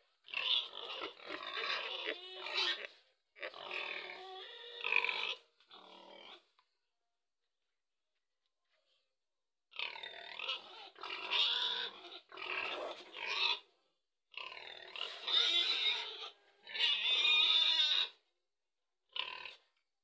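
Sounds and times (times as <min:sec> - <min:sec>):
pig calling: 0:00.2 - 0:06.5, 0:09.7 - 0:13.7, 0:14.4 - 0:18.2.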